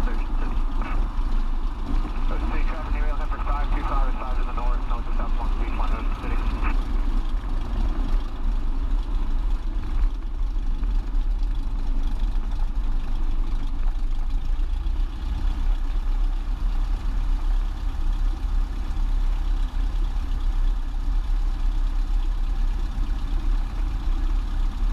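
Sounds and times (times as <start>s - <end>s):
light aircraft piston engine droning: 0.0s - 24.9s.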